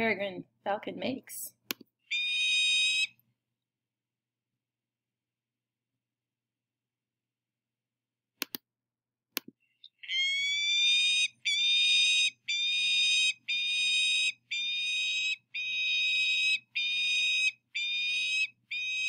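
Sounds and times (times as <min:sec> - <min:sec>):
falcon calls: 0:02.1 - 0:03.1, 0:09.8 - 0:19.0
mouse clicks: 0:08.4 - 0:08.6.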